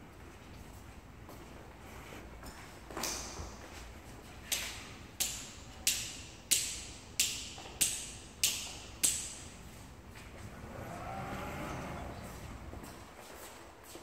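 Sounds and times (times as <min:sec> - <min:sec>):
sharp rhythmic taps: 0:05.2 - 0:09.4.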